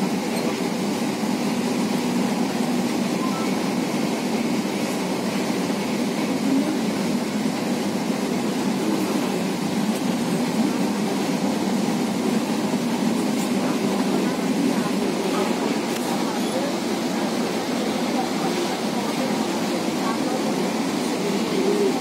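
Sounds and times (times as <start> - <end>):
electric train running: 0.0 - 22.0.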